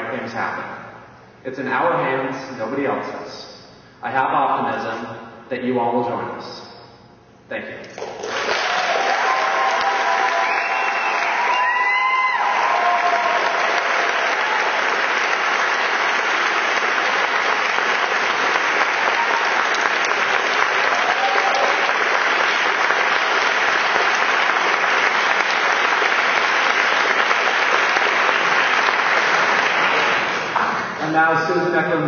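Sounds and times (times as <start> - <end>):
audience applauding: 7.9 - 31.0.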